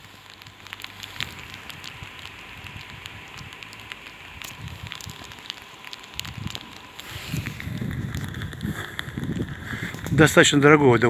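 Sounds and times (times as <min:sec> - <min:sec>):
light rain falling: 0:00.0 - 0:11.0.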